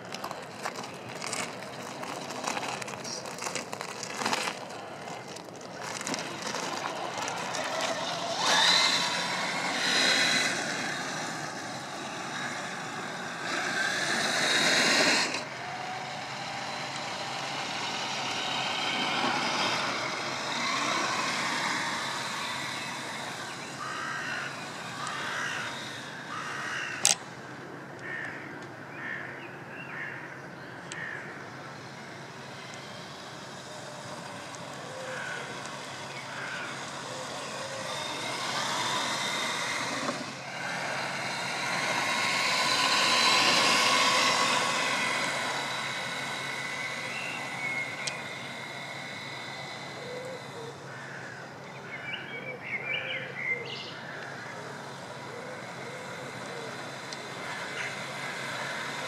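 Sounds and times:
toy car electric motor: 0.0s - 27.4s, 30.9s - 51.6s, 53.8s - 59.0s
tyres crunching gravel: 0.0s - 27.4s, 31.6s - 51.4s.

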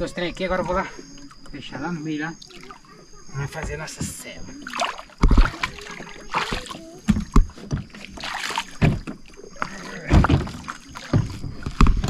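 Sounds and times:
paddle splashing water: 2.4s - 12.0s
knocks and bumps on kayak hull: 3.5s - 4.4s, 5.2s - 9.3s, 10.0s - 12.0s.

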